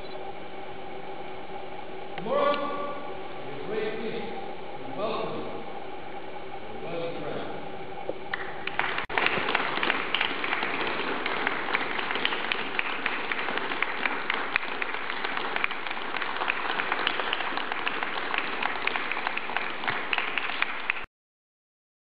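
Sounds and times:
crowd clapping: 8.3s - 21.1s.

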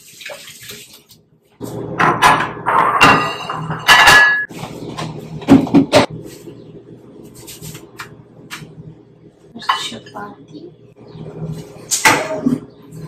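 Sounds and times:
ceramic plates clinking on stone: 2.2s - 4.5s.

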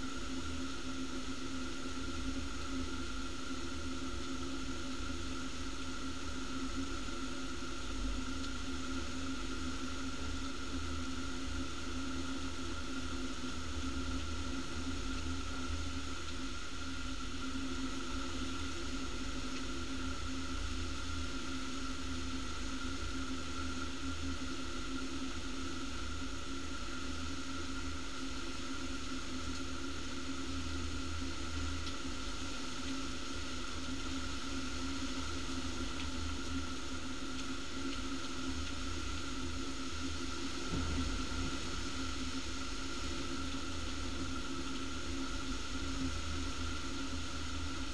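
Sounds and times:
heavy rain hissing: 24.5s - 47.9s
wind rumble on microphone: 30.5s - 47.9s.

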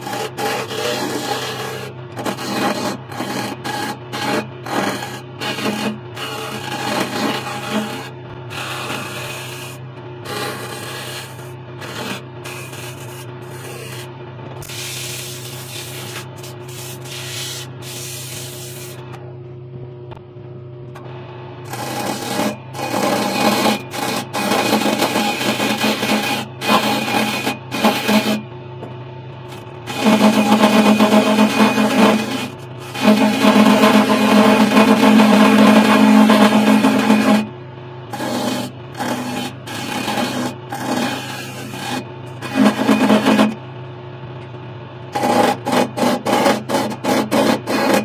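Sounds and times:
sandpaper rubbing wood: 0.0s - 19.0s
chisel scraping wood: 0.0s - 19.1s, 21.7s - 28.4s, 29.5s - 37.5s, 38.1s - 43.6s, 45.2s - 48.0s
lathe motor humming: 0.0s - 19.2s, 21.0s - 43.6s.

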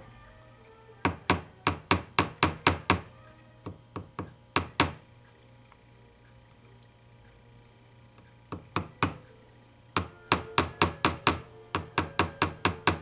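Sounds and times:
small hammer tapping metal pin: 8.5s - 9.2s, 10.0s - 13.0s.

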